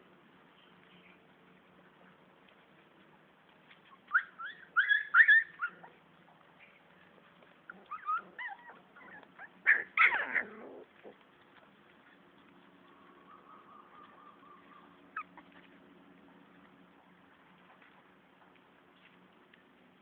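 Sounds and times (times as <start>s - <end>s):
puppies yelping and whimpering: 3.8s - 6.0s, 7.7s - 11.2s, 12.9s - 15.7s.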